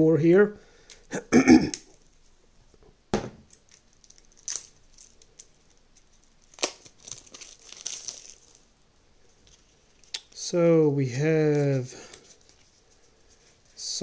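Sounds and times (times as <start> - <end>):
soft rustling: 11.4 - 14.0.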